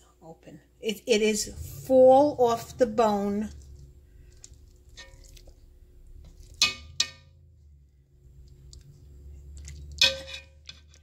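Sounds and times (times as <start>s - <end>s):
low steady hum: 0.0s - 11.0s
metal tongs clinking on cast iron: 10.0s - 11.0s.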